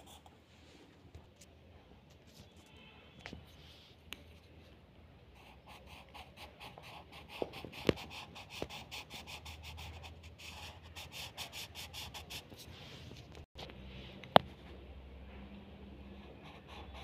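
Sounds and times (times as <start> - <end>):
pencil shading on paper: 5.4 - 12.7, 16.2 - 17.0.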